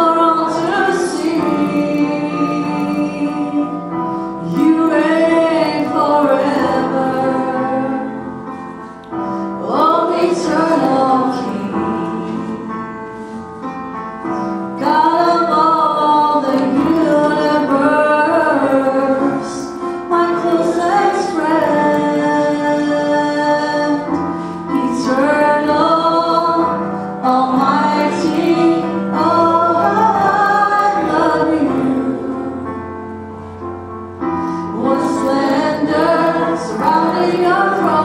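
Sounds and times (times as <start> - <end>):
electronic keyboard chords: 0.0 - 38.0
woman singing: 4.5 - 8.2, 14.8 - 32.5.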